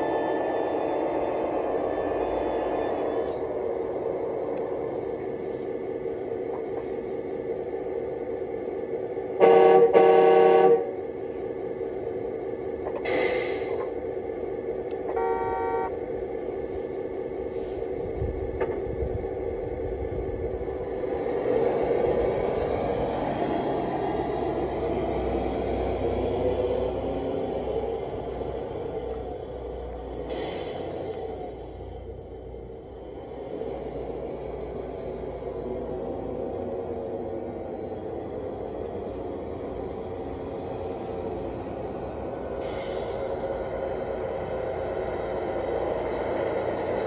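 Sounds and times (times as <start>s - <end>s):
brief tone: 0.0s - 3.5s
horn blasts: 9.4s - 10.9s, 15.1s - 16.0s
short hiss: 13.1s - 13.8s, 30.3s - 31.0s, 42.6s - 43.3s.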